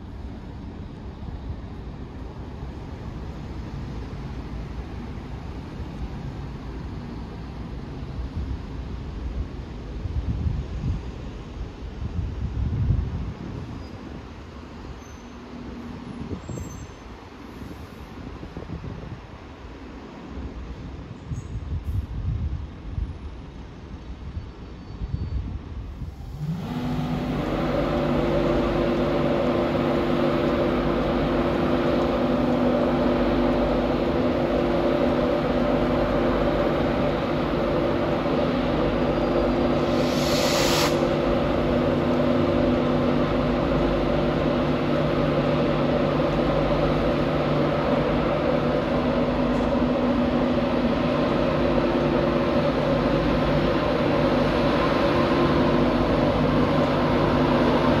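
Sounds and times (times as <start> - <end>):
electric locomotive humming: 0.0 - 21.1, 25.7 - 58.0
hissing air burst: 39.7 - 41.4.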